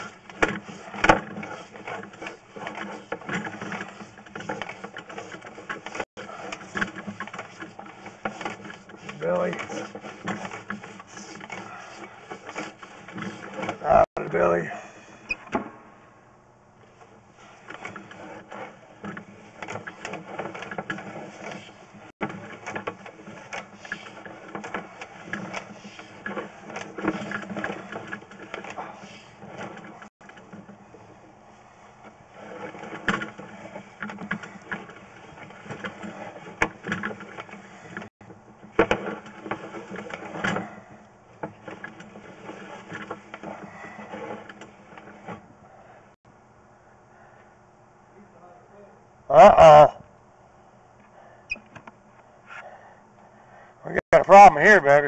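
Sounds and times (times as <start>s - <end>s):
cable clattering and scraping in drain: 0.0s - 14.4s, 16.9s - 46.2s.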